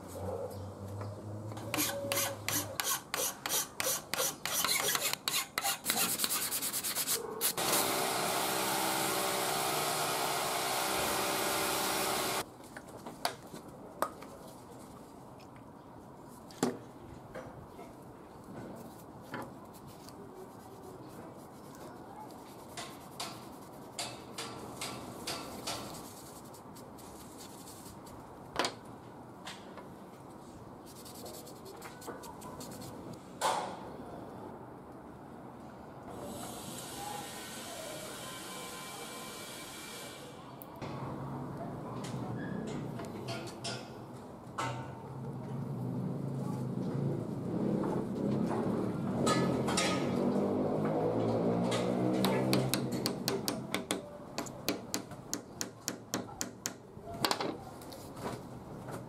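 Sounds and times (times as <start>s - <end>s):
hand file rasping: 1.7s - 7.2s
cloth rubbing wooden handle: 1.7s - 7.3s.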